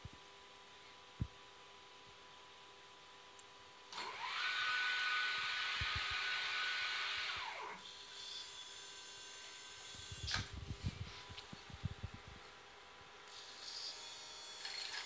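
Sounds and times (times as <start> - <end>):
stepper motor whine: 3.9 - 11.0.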